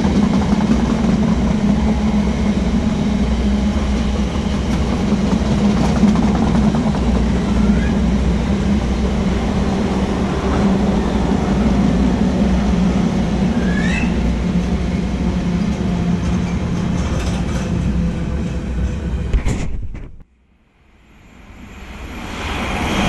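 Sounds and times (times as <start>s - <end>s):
freight train rolling on rails: 0.0s - 19.4s, 21.0s - 23.0s
wheel squeal: 7.5s - 8.0s, 13.4s - 14.3s.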